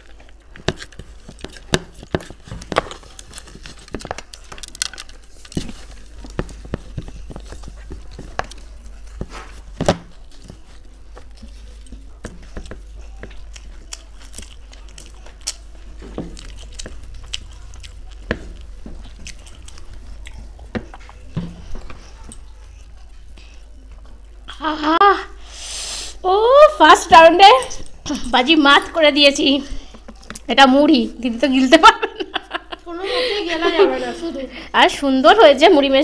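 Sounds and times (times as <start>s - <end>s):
puffed rice crunching: 0.0s - 24.4s.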